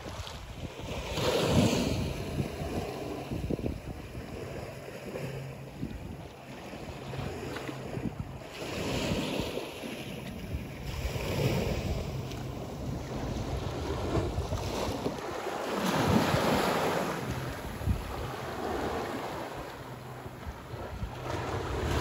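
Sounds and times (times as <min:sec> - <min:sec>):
waves lapping against sea wall: 0:00.0 - 0:22.0
wind on microphone: 0:00.0 - 0:22.0.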